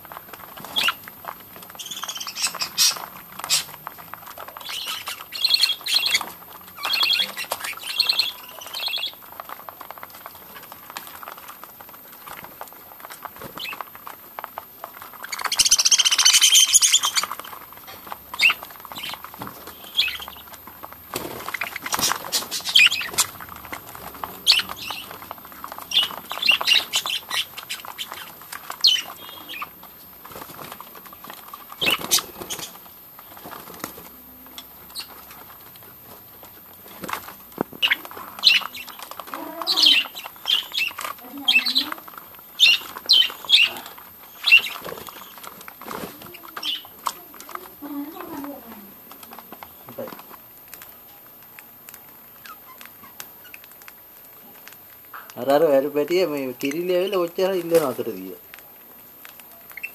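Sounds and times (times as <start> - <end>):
budgerigars chirping: 0.6 - 1.1, 1.7 - 3.8, 4.4 - 9.2, 15.2 - 29.8, 31.8 - 33.6, 34.6 - 35.4, 37.8 - 45.6, 46.6 - 47.0.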